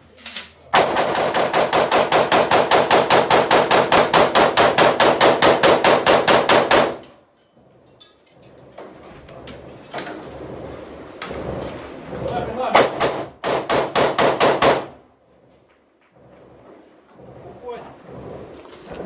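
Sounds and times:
rapid rifle shots: 0.8s - 7.0s, 12.7s - 15.0s
scattered noise: 9.1s - 19.0s.

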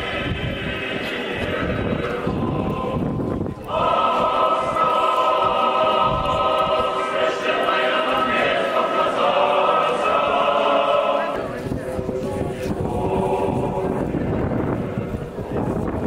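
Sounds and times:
choir singing held chords: 0.0s - 15.9s.

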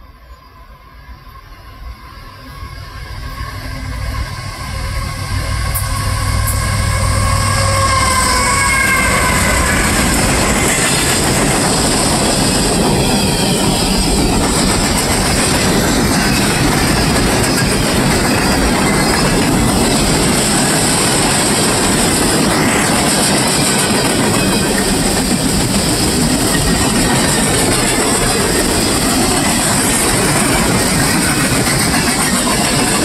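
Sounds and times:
freight train rumble: 1.2s - 33.0s
steel wheels clattering on rails: 5.7s - 33.0s.

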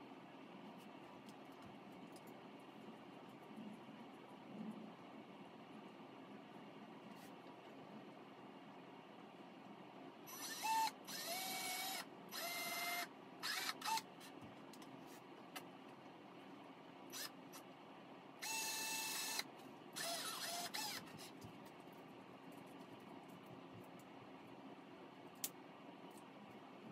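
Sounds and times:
power drill whining into wood: 10.3s - 14.0s, 18.4s - 19.4s, 20.0s - 21.1s.

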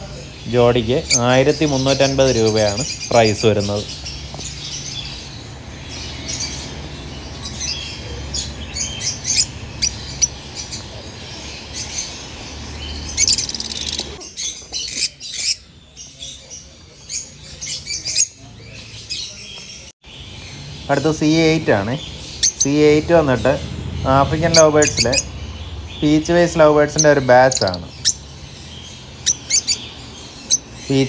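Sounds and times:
lovebirds chirping and squawking: 0.0s - 31.0s.

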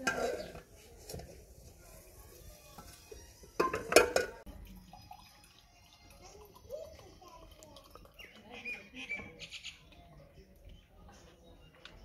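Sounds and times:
steel utensils clinking: 3.5s - 4.4s.

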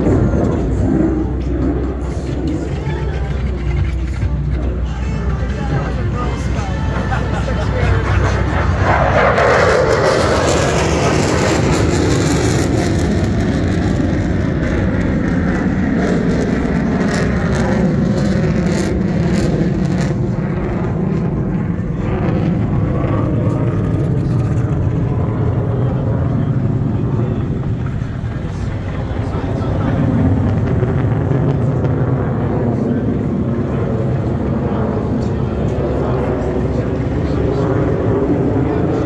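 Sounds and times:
aircraft engine rumble: 0.0s - 39.0s.

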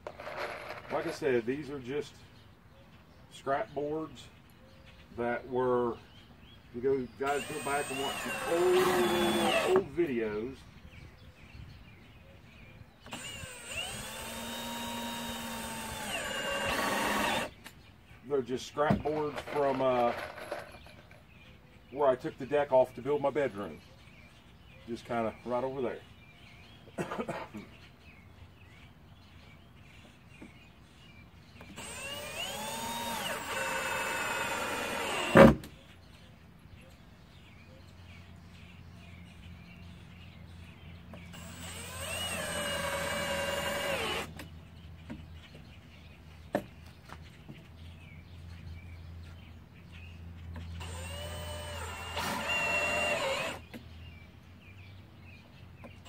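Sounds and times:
cordless drill driving screws: 7.2s - 9.9s, 13.0s - 17.6s, 31.6s - 35.7s, 41.3s - 44.5s, 50.8s - 53.7s.

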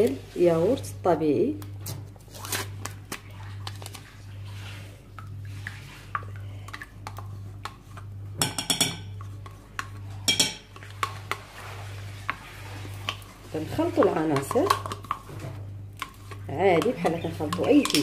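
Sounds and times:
steady low hum: 0.0s - 18.0s
spoon clinking on glass bowl: 8.4s - 9.1s, 10.3s - 10.7s.

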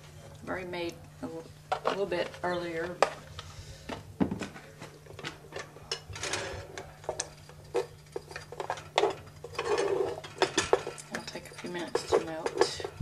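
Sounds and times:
faint steady hum: 0.0s - 13.0s
metal spoon scraping saucepan: 5.9s - 13.0s.

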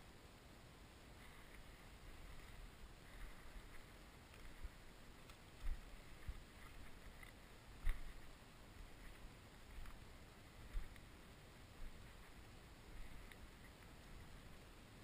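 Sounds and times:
walking through field stubble: 1.1s - 14.8s.

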